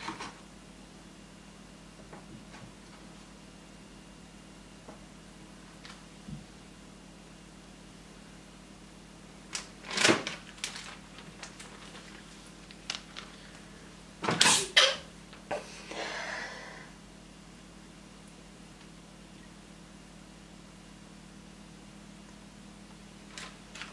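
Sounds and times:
plastic packaging crinkling: 9.5s - 13.6s.

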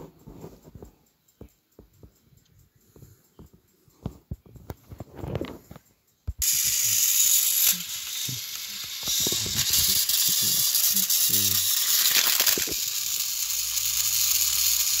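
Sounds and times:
plastic toys clicking: 6.4s - 15.0s
toy train motor whirring: 6.4s - 15.0s
wheels clicking on plastic track: 6.4s - 15.0s.

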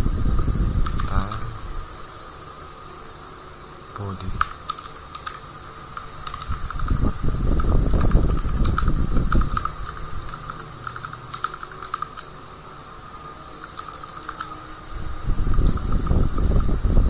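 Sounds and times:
keyboard typing: 0.8s - 1.5s, 4.0s - 12.3s, 13.6s - 14.6s, 15.5s - 16.7s.

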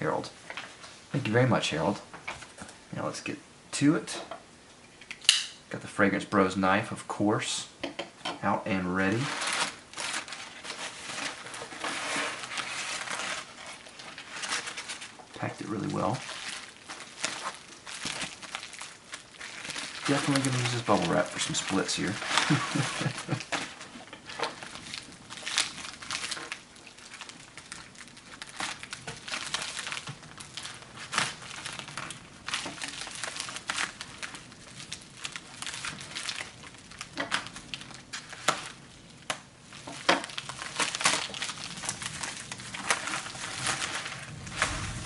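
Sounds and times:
plastic mailer crinkling: 8.7s - 45.0s
sharp plastic crackles: 8.7s - 45.0s.

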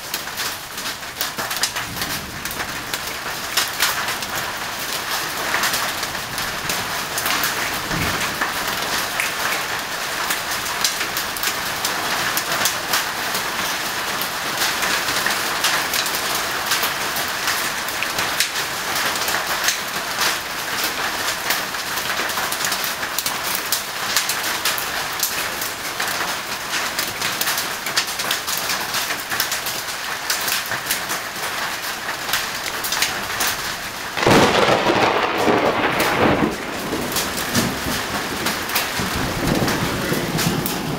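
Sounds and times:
rain falling steadily: 0.0s - 40.9s
thunder crash: 34.2s - 40.9s.

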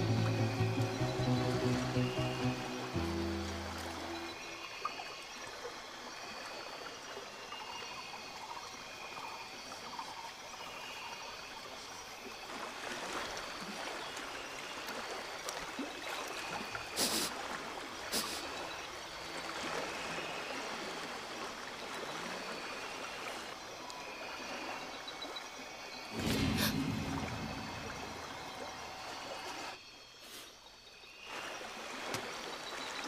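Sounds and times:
river water flowing: 0.0s - 29.8s, 31.2s - 33.0s
short sharp sounds: 26.1s - 29.1s.

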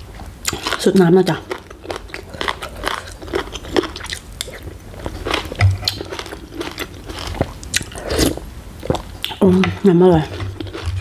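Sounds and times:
wet chewing and lip smacks: 1.5s - 8.0s.

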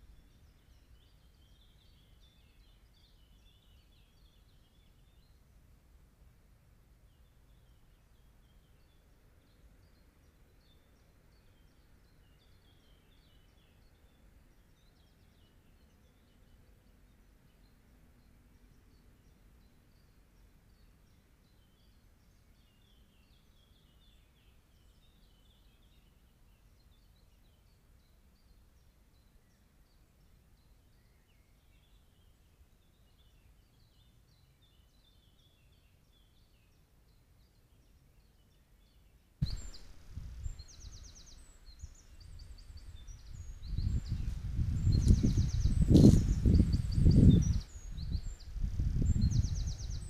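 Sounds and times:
songbird calls: 39.4s - 50.0s.

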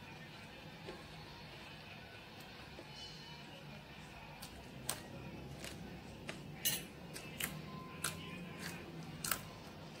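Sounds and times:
metal spoon clinking on plate: 6.6s - 7.0s.

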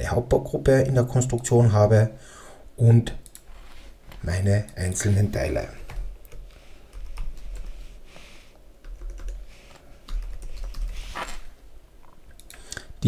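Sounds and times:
keyboard typing: 5.9s - 7.8s, 8.8s - 11.3s.

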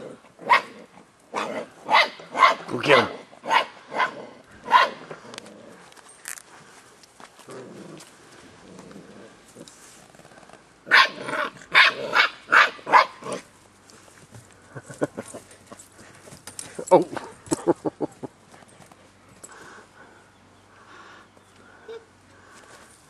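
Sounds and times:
dogs barking: 0.4s - 5.1s, 10.9s - 13.4s
dog growling: 5.0s - 5.9s, 7.4s - 9.7s.

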